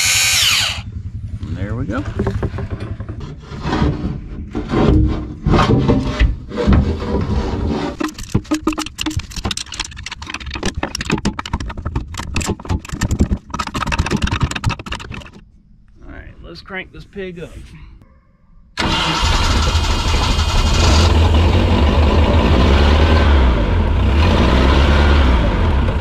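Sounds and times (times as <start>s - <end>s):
heavy knocks and scrapes: 1.3s - 15.4s
quick clicks and rattles: 8.0s - 15.4s.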